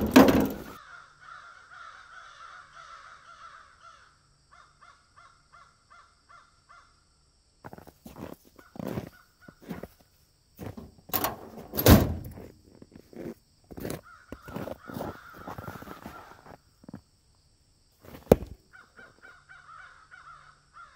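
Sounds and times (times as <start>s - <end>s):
loud thump: 0.0s - 0.8s.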